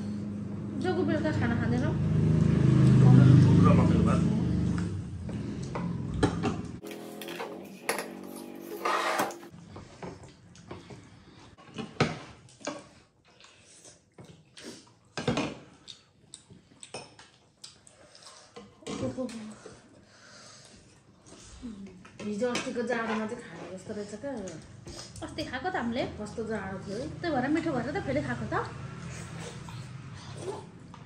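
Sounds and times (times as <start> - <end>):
small clicks of eating: 15.7 - 19.8, 24.2 - 25.4.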